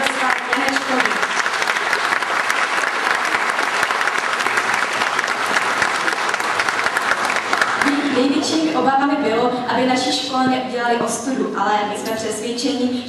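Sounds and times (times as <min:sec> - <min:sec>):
audience applauding: 0:00.0 - 0:08.2.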